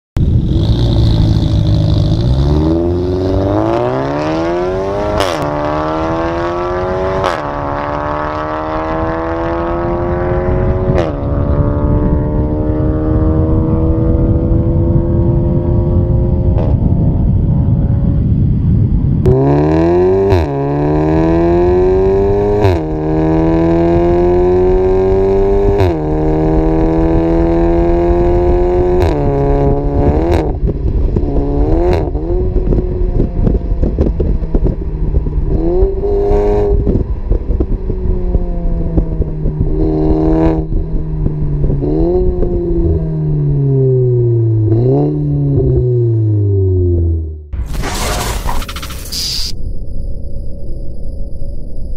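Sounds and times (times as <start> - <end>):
car exhaust under hard acceleration: 0.2 - 49.0
loud rushing noise: 47.6 - 50.4.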